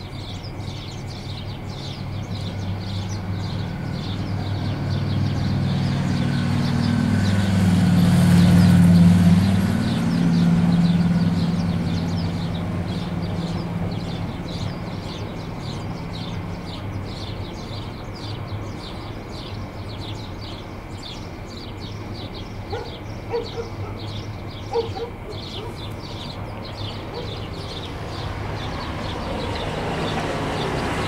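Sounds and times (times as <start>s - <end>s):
engine hum passing: 0.0s - 31.0s
small birds chirping: 0.0s - 31.0s.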